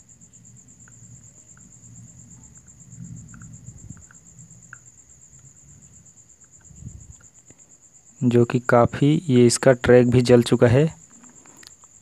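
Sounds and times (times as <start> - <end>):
low background rumble: 0.0 - 7.3
cricket trilling: 0.0 - 12.0
faint small ticks: 0.3 - 7.9, 11.0 - 12.0.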